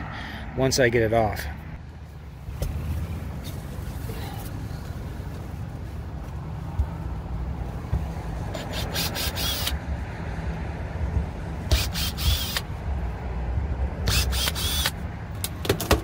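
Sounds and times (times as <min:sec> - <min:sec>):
steady low rumble: 0:00.0 - 0:15.4
cordless drill whining: 0:08.6 - 0:09.8, 0:11.7 - 0:12.6, 0:14.1 - 0:15.0.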